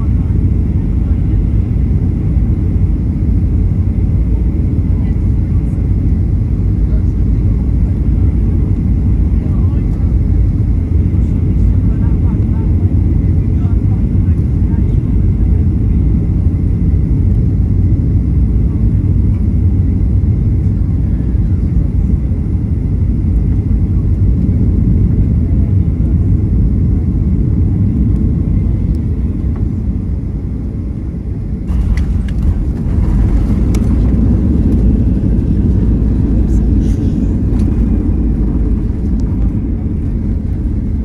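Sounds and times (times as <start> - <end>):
jet engines and airflow rumble: 0.0 - 41.0
plane touchdown rush of noise: 31.7 - 41.0.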